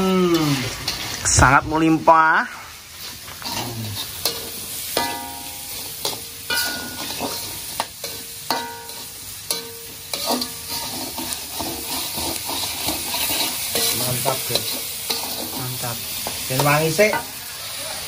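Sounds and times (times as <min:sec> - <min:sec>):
paste sizzling in hot oil: 0:00.0 - 0:18.0
metal spatula clanging on pan: 0:03.4 - 0:17.4.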